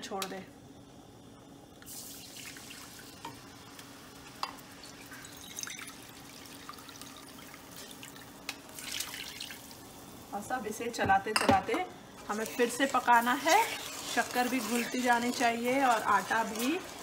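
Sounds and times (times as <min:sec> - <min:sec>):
water pouring into a bowl: 0:05.0 - 0:09.8.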